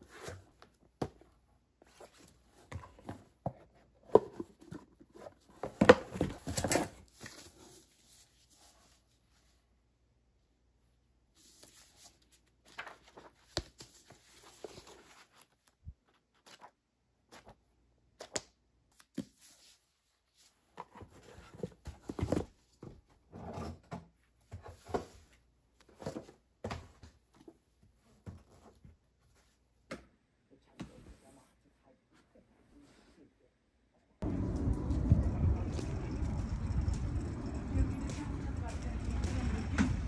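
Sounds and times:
books and cardboard box handled: 0.0 - 9.6, 11.4 - 17.6, 18.2 - 29.6.

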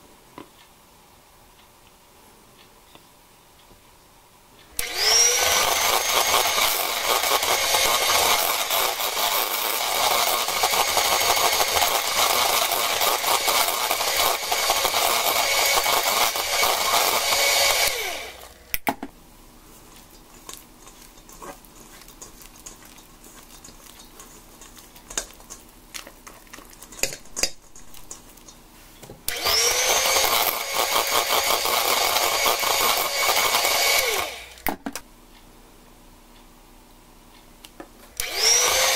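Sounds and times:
electric hand mixer whisking: 4.8 - 18.6, 19.9 - 28.5, 29.3 - 34.6, 38.2 - 38.9.

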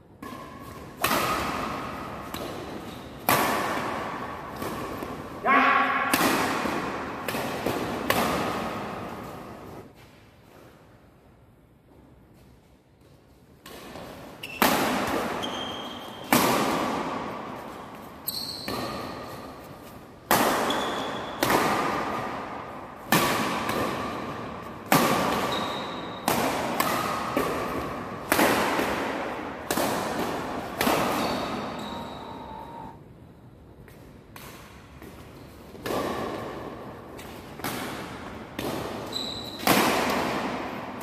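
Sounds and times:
racket striking shuttlecock: 0.1 - 9.8, 13.6 - 17.7, 20.2 - 32.4, 35.8 - 41.0
shoes squeaking on floor: 14.4 - 14.7, 15.4 - 16.3, 18.2 - 19.4, 20.7 - 21.4, 25.5 - 26.2, 31.2 - 33.0, 39.0 - 39.7.

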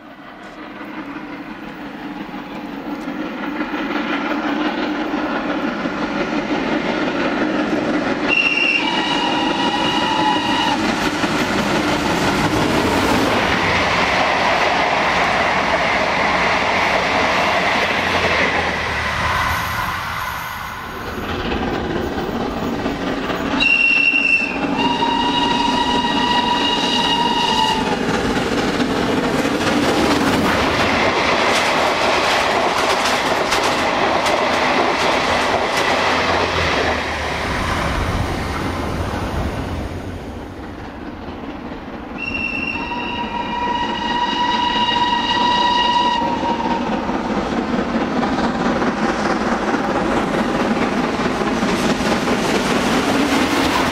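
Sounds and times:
train rumbling over rails: 0.0 - 53.9
steam whistle: 8.3 - 10.8, 23.6 - 27.9, 42.2 - 46.9.

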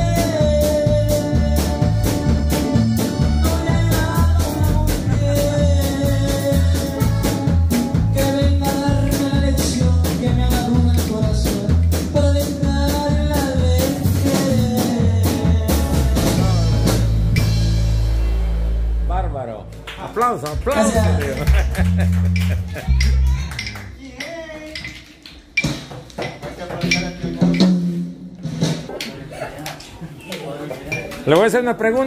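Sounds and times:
young man singing: 0.0 - 17.1
electric bass: 0.0 - 24.0
drum kit: 0.0 - 29.2.

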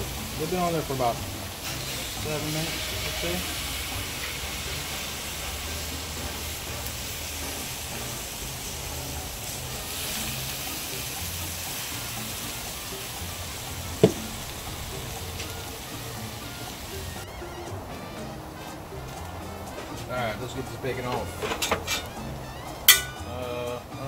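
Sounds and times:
bacon sizzling on griddle: 0.0 - 17.3
sharp knock: 14.0 - 14.3.

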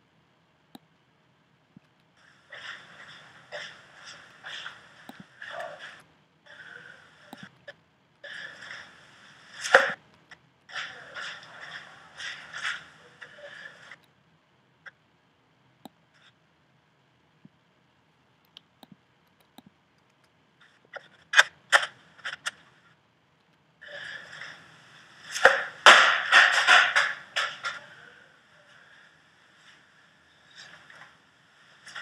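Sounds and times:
scattered clicks: 0.7 - 1.1, 1.7 - 6.1, 7.2 - 8.9, 18.2 - 22.7, 23.3 - 24.6.

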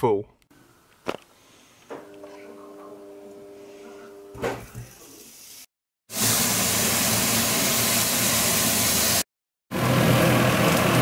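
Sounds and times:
food sizzling in frying pan: 5.1 - 9.2.

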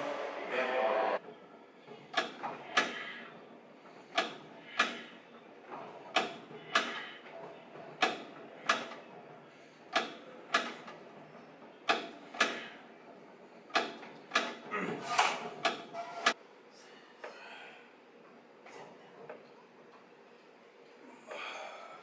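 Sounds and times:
weight machine clacking: 1.2 - 16.4.

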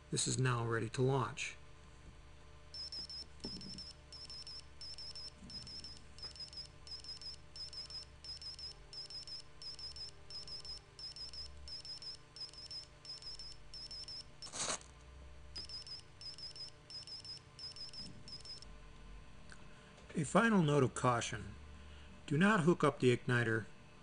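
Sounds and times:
faint high-pitched electronic beeps: 2.8 - 14.2.

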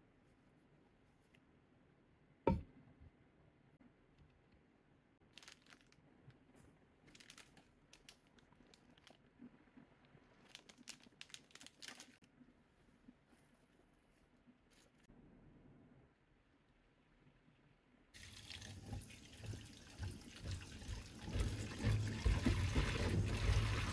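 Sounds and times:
thump: 2.5 - 2.7
plastic packaging crinkling: 5.2 - 9.5, 10.2 - 12.3.

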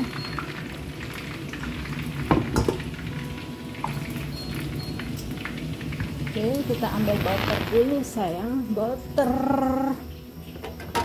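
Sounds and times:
faint sizzle: 0.0 - 11.0
induction hob hum: 0.0 - 11.0
cookware knocks: 2.3 - 2.8.

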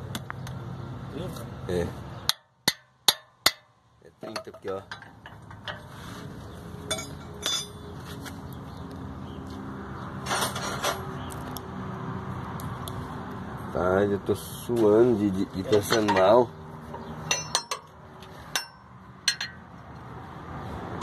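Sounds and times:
wrench clinking on metal: 4.2 - 5.8, 6.9 - 7.8, 15.7 - 16.4, 17.2 - 17.9, 18.5 - 19.6
wrench scraping: 15.6 - 17.9, 18.5 - 19.6.

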